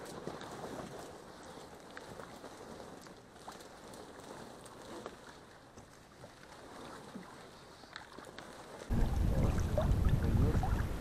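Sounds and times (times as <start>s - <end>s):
reeds brushing inflatable boat: 0.0s - 11.0s
wind buffeting microphone: 8.9s - 11.0s.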